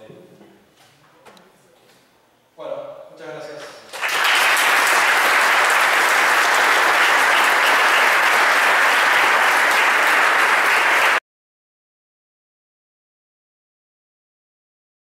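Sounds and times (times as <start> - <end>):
audience applauding: 3.9 - 11.2.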